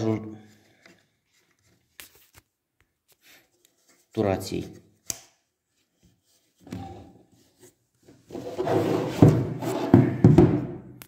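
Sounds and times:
handling rubbing and scraping: 5.9s - 10.3s.

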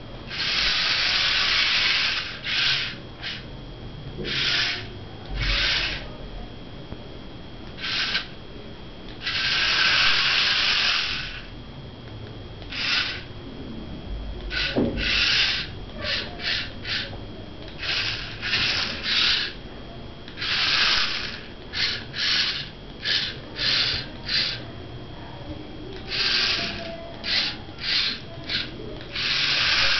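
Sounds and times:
small electric motors whirring: 0.3s - 3.5s, 4.2s - 6.1s, 7.8s - 8.4s, 9.1s - 11.5s, 12.6s - 13.3s, 14.4s - 19.6s, 20.3s - 24.6s, 25.9s - 29.9s.

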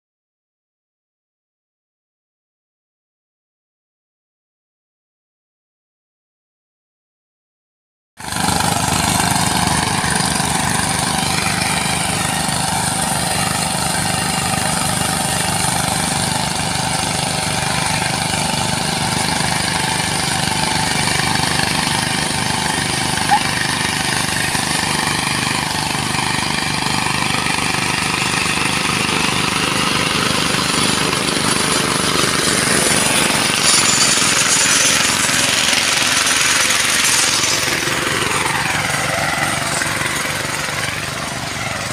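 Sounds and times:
power tiller engines chugging: 8.2s - 41.9s.

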